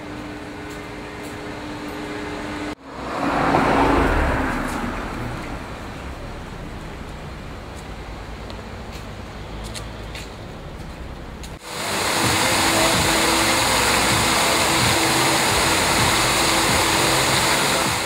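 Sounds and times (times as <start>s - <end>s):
street background noise: 0.0s - 18.0s
road vehicle passing close by: 2.1s - 8.4s.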